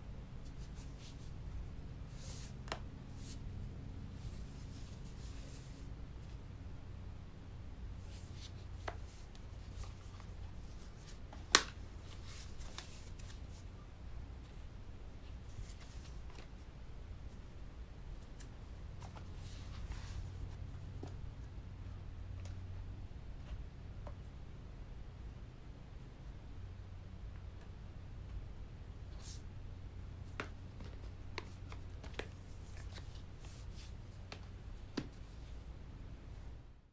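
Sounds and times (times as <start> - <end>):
steady low hum: 0.0 - 36.9
hands rubbing a tablet case: 2.1 - 3.5.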